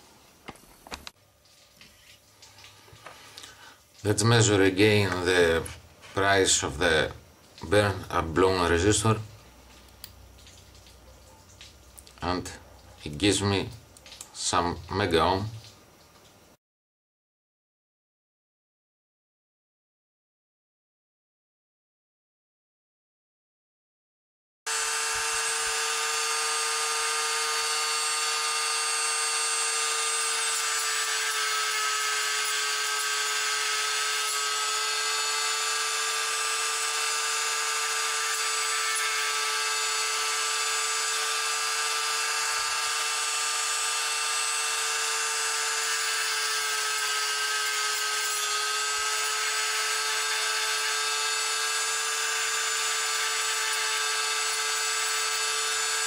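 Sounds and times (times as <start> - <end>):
rotary tool grinding whine: 2.8 - 10.2, 24.7 - 56.0.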